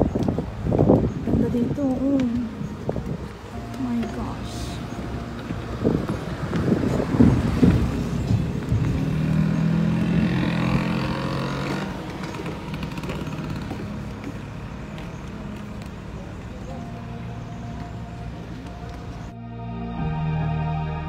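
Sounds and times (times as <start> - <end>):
passing engine hum: 0.0 - 21.0
uneven low rumbling: 0.0 - 21.0.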